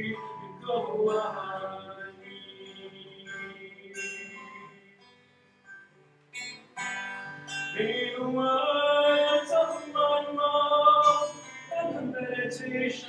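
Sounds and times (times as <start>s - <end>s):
man singing: 0.0s - 5.1s, 7.7s - 13.0s
acoustic guitar strumming: 0.0s - 13.0s.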